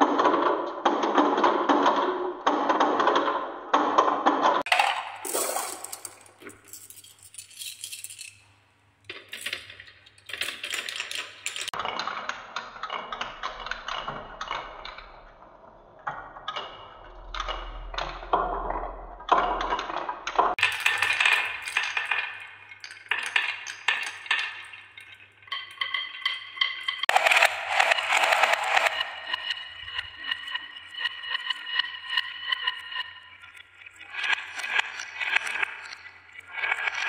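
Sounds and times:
marbles rolling on wooden tracks: 4.6 - 8.5, 9.1 - 14.2, 18.6 - 37.0.

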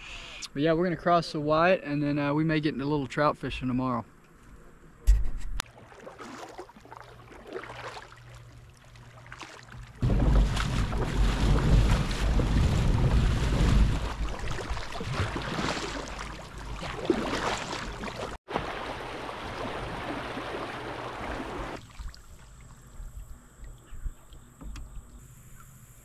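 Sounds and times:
paddling water splashing: 5.6 - 23.8
wind on microphone: 10.0 - 15.3.

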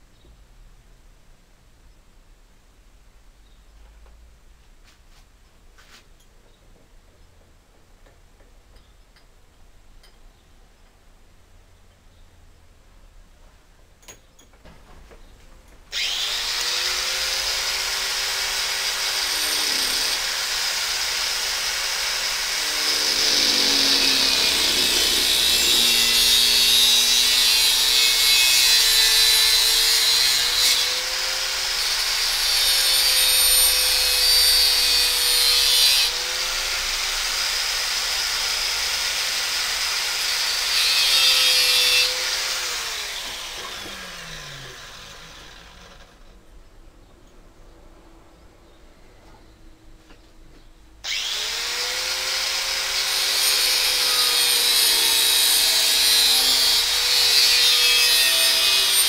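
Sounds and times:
angle grinder grinding metal: 15.9 - 46.2, 51.1 - 59.0.

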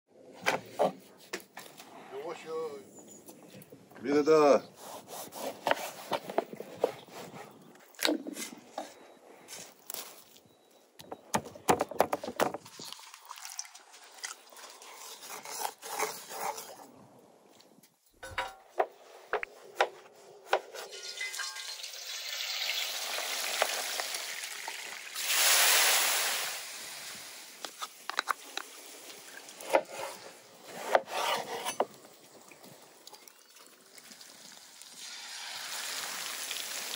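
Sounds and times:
noisy hiss: 25.1 - 28.8.

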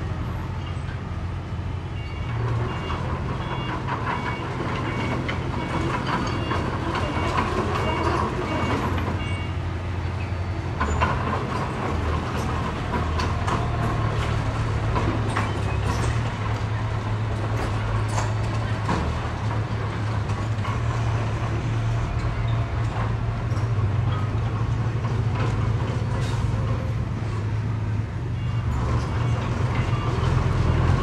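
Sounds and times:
diesel machinery running: 0.0 - 31.0
knocks and clanks: 2.3 - 9.4, 10.8 - 27.0.

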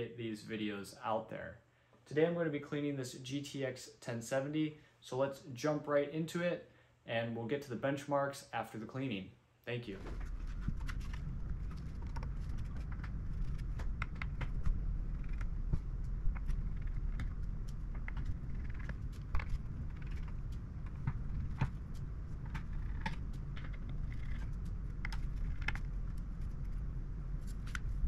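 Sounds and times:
steady low hum: 9.6 - 28.0.

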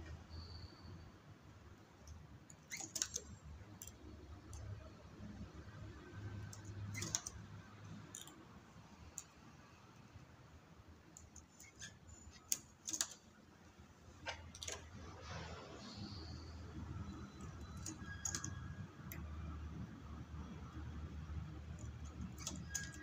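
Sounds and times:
knitting machine needles clicking: 2.0 - 9.5, 11.0 - 13.5, 14.2 - 15.0, 16.9 - 23.0.

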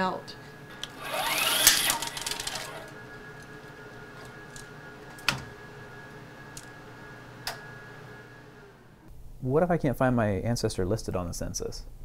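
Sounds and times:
steady machine hum: 0.0 - 9.8
machine whir: 0.4 - 9.1.

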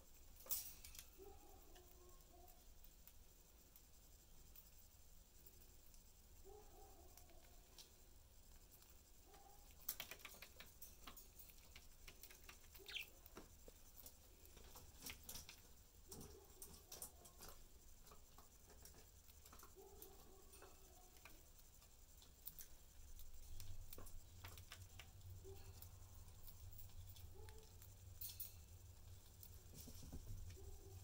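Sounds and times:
budgies pecking seed on cardboard: 0.0 - 31.0
budgie chirp: 12.8 - 13.2.

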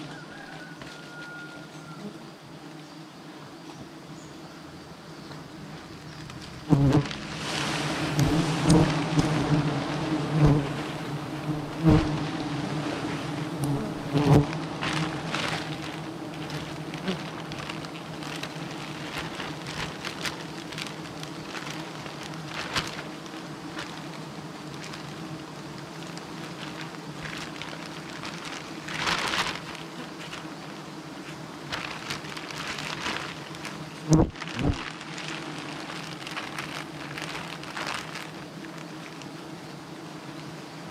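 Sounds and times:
bees buzzing: 0.0 - 40.9
plastic bag rustling: 6.2 - 39.4
bee flying past microphone: 6.7 - 17.9, 33.3 - 36.4.

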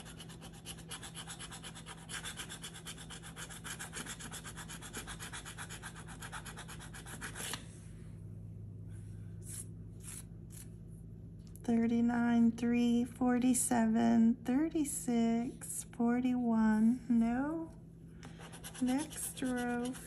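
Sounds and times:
coin scratching lottery ticket: 0.0 - 7.5, 18.6 - 20.0.

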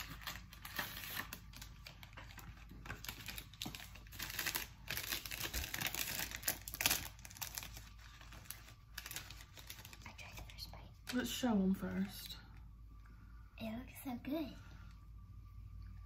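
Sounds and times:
packaging crinkling and rustling: 0.0 - 11.3.

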